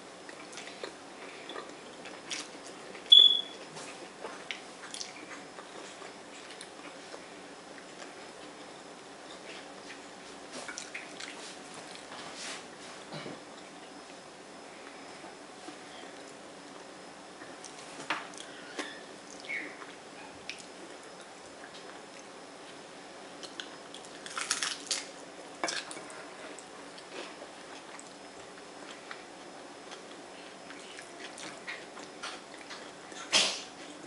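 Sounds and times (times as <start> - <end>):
chewing and crunching food: 0.2 - 34.0
small clicks and crunches: 23.4 - 27.1.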